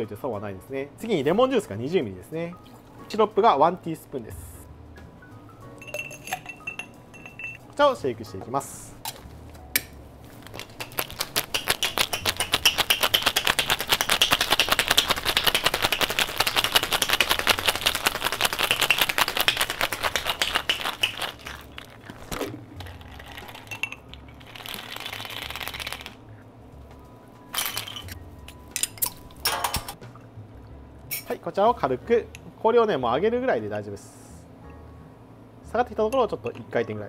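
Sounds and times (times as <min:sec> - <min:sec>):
ice rattling in cocktail shaker: 0:10.4 - 0:26.2, 0:27.6 - 0:28.2
shaker knocks: 0:10.5 - 0:21.8
drink pouring into glass: 0:20.7 - 0:26.1.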